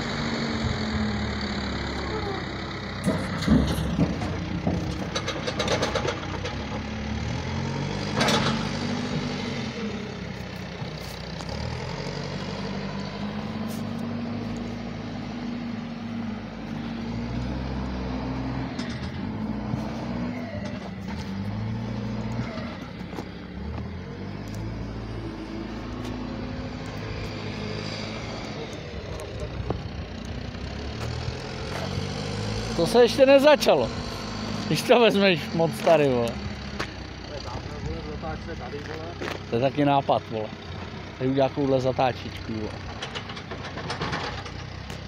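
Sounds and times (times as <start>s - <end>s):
backhoe diesel engine working: 0.0s - 45.0s
metal clatter: 3.0s - 7.0s, 8.1s - 9.2s, 18.7s - 19.9s, 42.6s - 45.0s.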